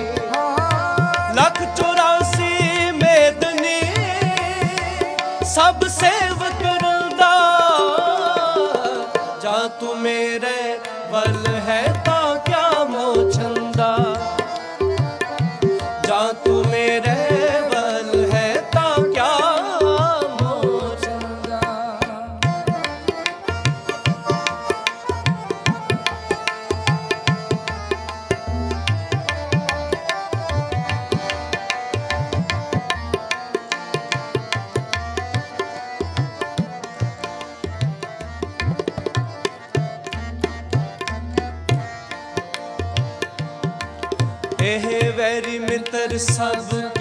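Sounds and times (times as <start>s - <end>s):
person singing: 0.0s - 14.5s, 15.8s - 23.2s
tabla playing fast rhythm: 0.0s - 47.0s.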